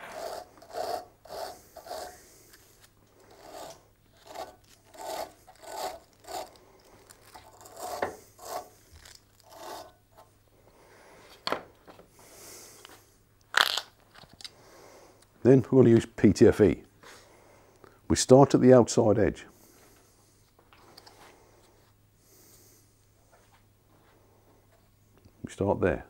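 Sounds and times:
wire brush scrubbing metal: 0.0s - 9.9s.

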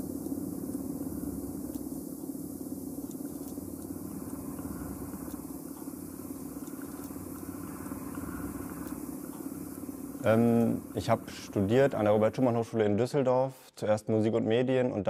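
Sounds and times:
faint scattered clicks: 0.0s - 11.5s
low electronic drone: 0.0s - 12.9s.

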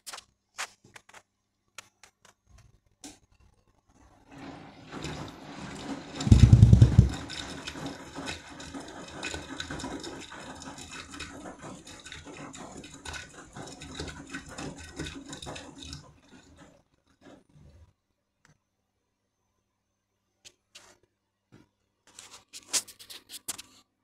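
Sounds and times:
water sloshing in washing machine: 4.3s - 17.9s
heavy low thump: 6.3s - 7.2s.

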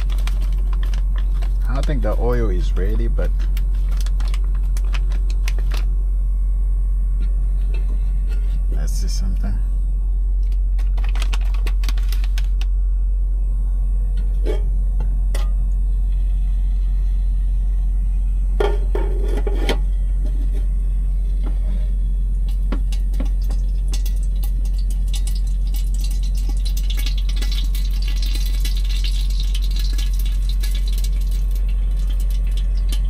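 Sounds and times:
oil crackling and sizzling: 0.0s - 2.1s, 22.4s - 33.0s
steady low hum: 0.0s - 33.0s.

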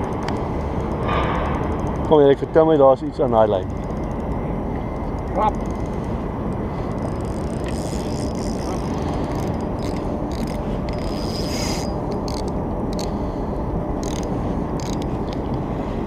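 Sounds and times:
fishing reel clicking and scraping: 0.0s - 2.7s, 3.3s - 13.2s, 14.0s - 15.6s
low rumble: 0.0s - 11.2s.

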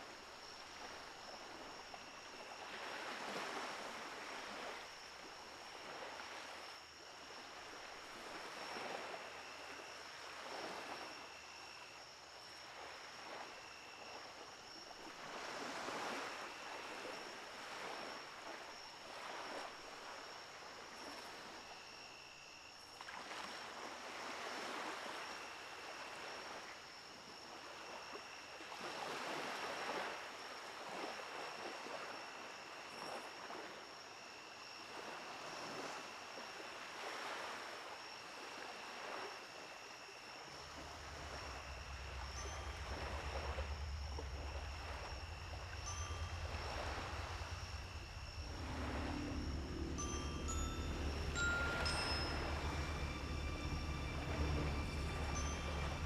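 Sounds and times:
surf washing onto beach: 40.5s - 56.0s
thin steady high tone: 40.5s - 56.0s
short high chirps: 45.8s - 56.0s.

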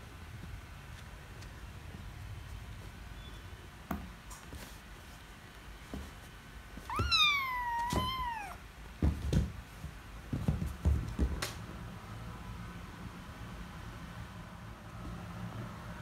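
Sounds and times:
kittens scuffling on leather sofa: 4.2s - 11.9s
kitten meowing: 6.9s - 8.6s.

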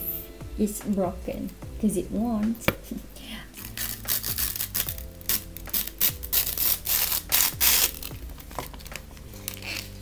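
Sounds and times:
plastic packaging crinkling: 3.6s - 10.0s.

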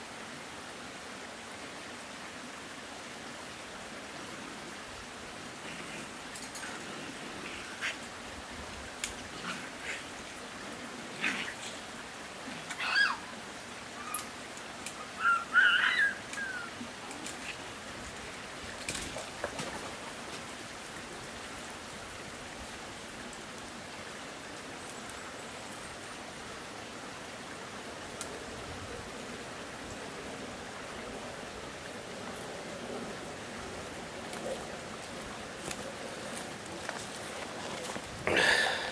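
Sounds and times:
steady background hiss: 0.0s - 38.9s
raccoon squealing: 12.8s - 13.3s, 15.2s - 16.7s.

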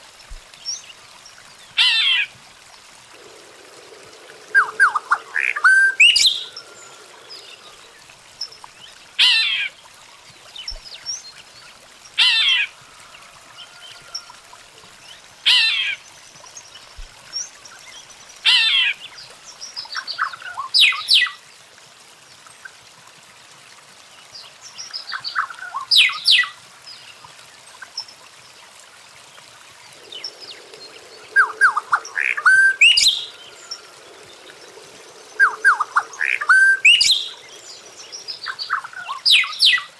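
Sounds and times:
songbird singing loud phrases: 4.0s - 8.0s, 29.9s - 39.9s.

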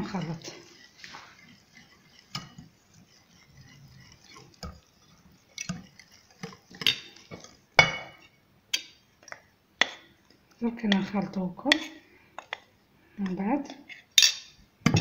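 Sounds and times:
whisk knocking against bowl: 0.0s - 8.2s
whisk stirring batter in a bowl: 0.0s - 14.2s.

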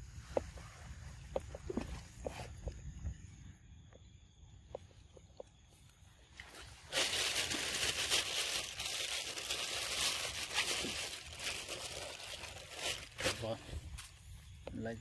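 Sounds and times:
crinkling and rustling: 6.4s - 14.2s.

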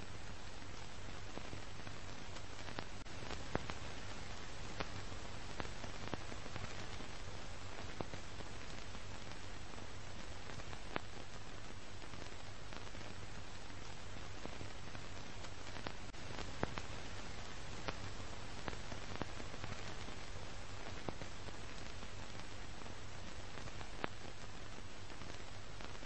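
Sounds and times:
steady hiss: 0.0s - 26.0s
sharp clicks and pops: 0.8s - 26.0s.

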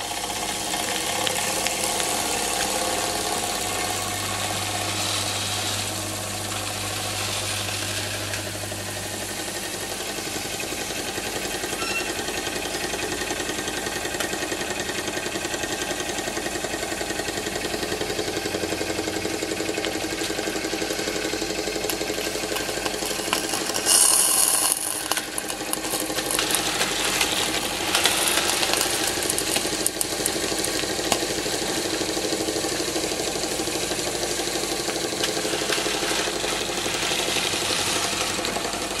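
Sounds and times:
steam hissing: 0.0s - 14.1s, 22.3s - 39.0s
toy steam engine chuffing: 0.0s - 39.0s.

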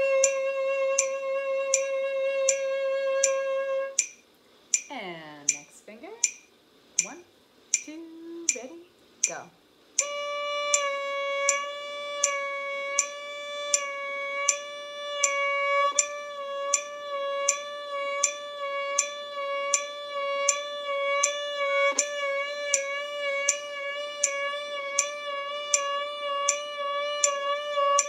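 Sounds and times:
violin sustained note: 0.0s - 4.0s, 10.0s - 28.0s
metronome clicking: 0.0s - 28.0s.

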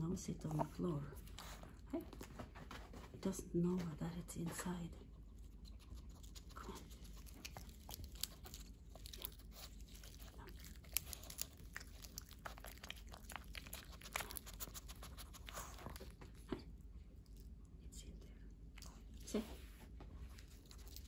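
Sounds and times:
puppy licking and snuffling: 0.1s - 3.3s, 4.6s - 21.0s
lettuce leaf crackling: 6.2s - 15.7s.

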